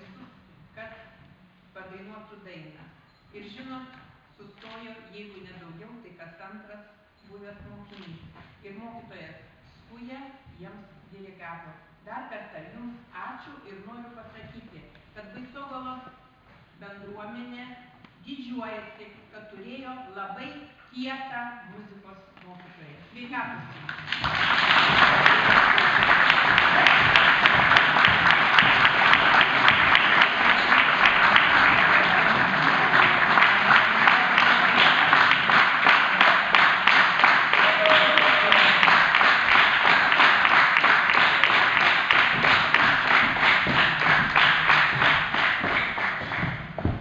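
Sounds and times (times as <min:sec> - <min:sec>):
crowd applause: 0:23.9 - 0:47.0.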